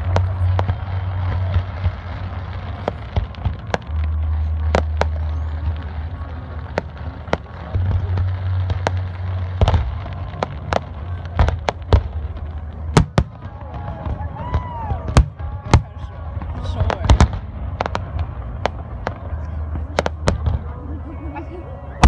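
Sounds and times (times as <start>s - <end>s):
fireworks bangs and crackling: 0.0s - 22.0s.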